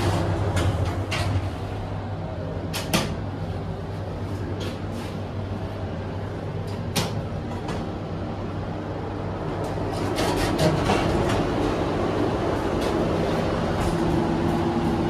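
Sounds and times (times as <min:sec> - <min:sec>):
elevator doors clicking and clunking: 0:00.0 - 0:15.0
subway station rumble and hum: 0:00.0 - 0:15.0.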